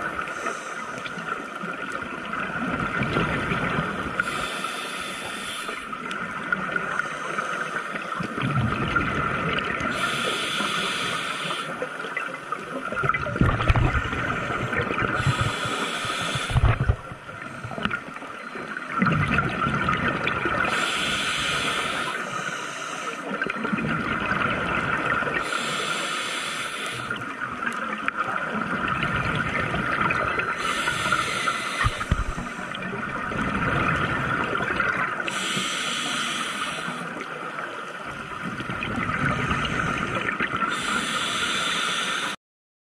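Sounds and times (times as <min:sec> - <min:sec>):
exhaled bubbles gurgling: 0:00.0 - 0:04.8, 0:08.0 - 0:42.4
regulator hissing inhale: 0:00.2 - 0:01.4, 0:04.2 - 0:06.0, 0:06.9 - 0:08.3, 0:09.9 - 0:11.9, 0:14.3 - 0:18.5, 0:20.7 - 0:23.3, 0:25.4 - 0:27.2, 0:30.6 - 0:32.8, 0:35.3 - 0:37.1, 0:39.3 - 0:42.4.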